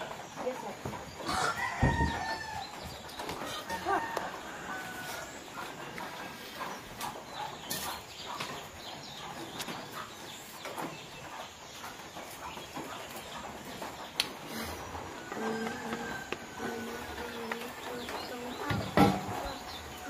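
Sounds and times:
wood fire crackling: 0.0s - 6.3s
chickens clucking: 0.0s - 20.0s.

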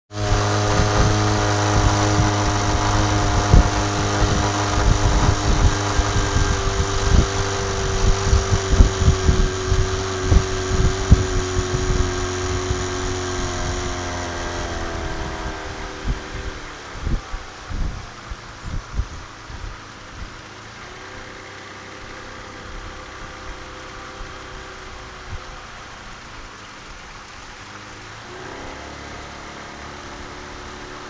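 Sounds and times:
outboard motor running: 0.1s - 31.0s.

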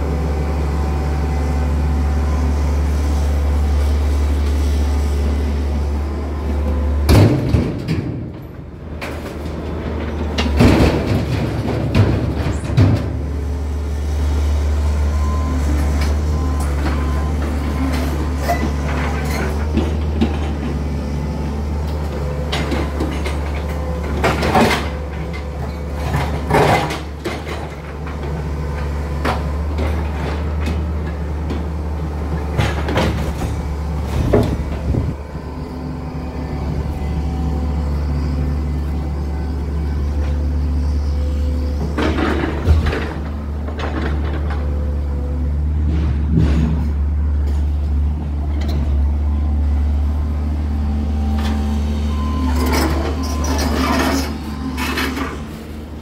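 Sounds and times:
excavator diesel engine drone: 0.0s - 56.0s
rubble crashing and clattering: 9.1s - 13.3s.

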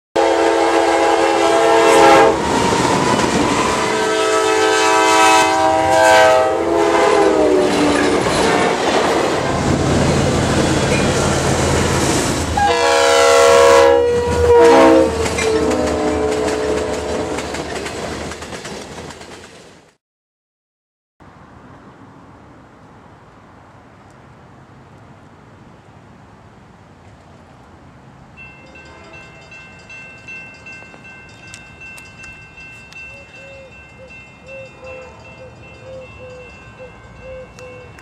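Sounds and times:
locomotive air horn blasts: 0.2s - 8.8s, 12.6s - 17.4s
locomotive engines rumbling: 0.2s - 19.2s.

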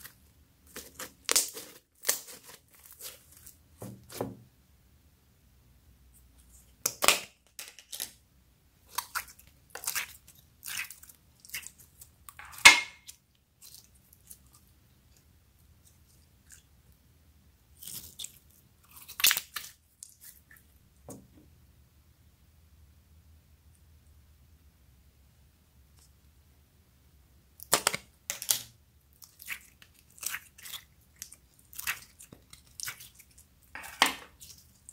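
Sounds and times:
slime squelching and crackling: 0.0s - 3.8s, 8.8s - 15.2s, 17.7s - 20.7s, 27.6s - 34.9s.

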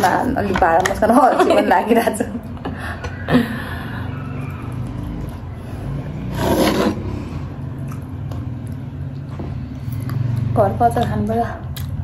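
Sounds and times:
short scrape: 6.3s - 7.4s.

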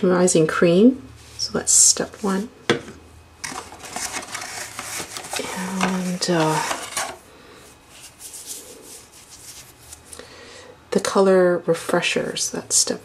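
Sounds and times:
plastic items clattering and rustling: 3.4s - 7.2s.

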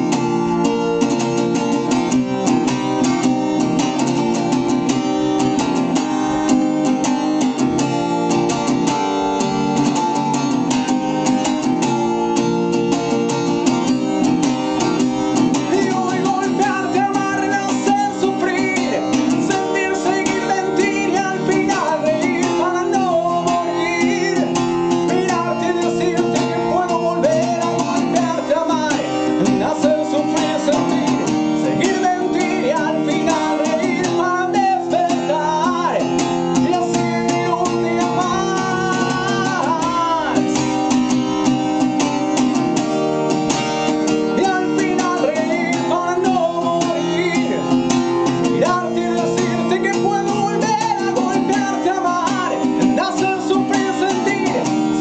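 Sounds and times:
acoustic guitar strumming: 0.0s - 55.0s
man singing: 14.2s - 42.0s, 44.1s - 55.0s.

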